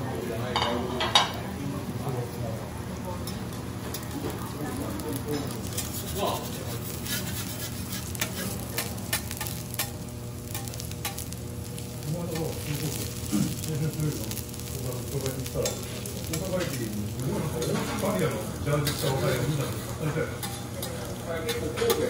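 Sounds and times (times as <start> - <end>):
garlic sizzling in oil: 3.9 - 22.0
metal spatula clicking and scraping: 5.4 - 11.3, 15.6 - 16.8, 20.4 - 22.0.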